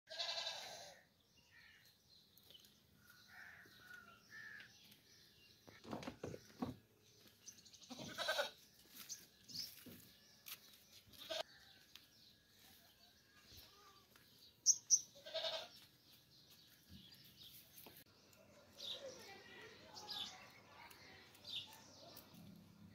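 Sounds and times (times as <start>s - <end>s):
goats bleating: 0.1s - 1.0s, 7.8s - 8.6s, 15.2s - 15.8s.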